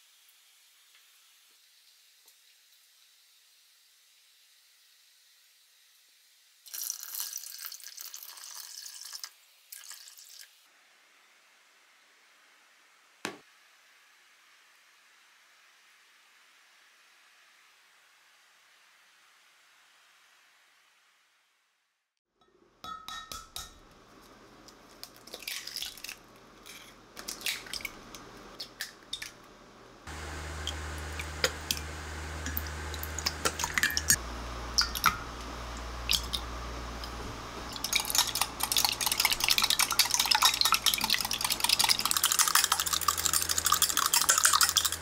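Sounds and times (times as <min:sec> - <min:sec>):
kitchen taps and clinks: 0:22.8 - 0:23.9
low steady hum: 0:26.3 - 0:45.0
whisk beating eggs in glass jug: 0:37.6 - 0:45.0.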